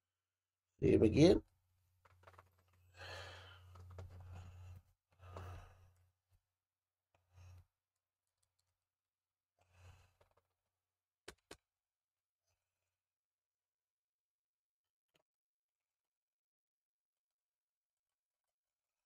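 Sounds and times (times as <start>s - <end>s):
soft sighing breaths: 2.8s - 6.1s.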